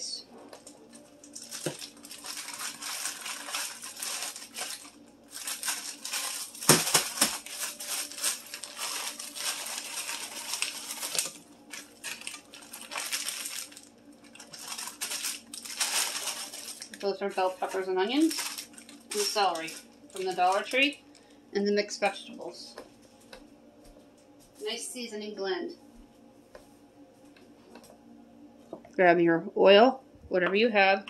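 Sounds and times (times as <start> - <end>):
plastic bag crinkling: 0.4 - 21.4
frozen vegetables rattling in bag: 0.6 - 21.3.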